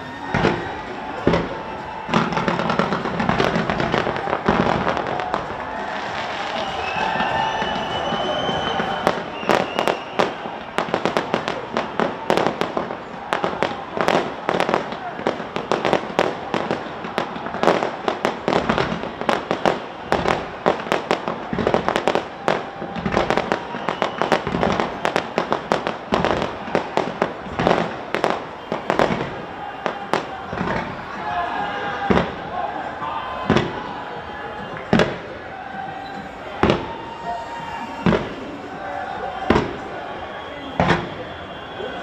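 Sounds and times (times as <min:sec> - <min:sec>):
fireworks bangs and crackles: 0:00.0 - 0:42.0
deep firework booms: 0:08.8 - 0:31.0, 0:33.4 - 0:33.9, 0:34.9 - 0:37.2, 0:37.9 - 0:38.5, 0:40.7 - 0:41.7.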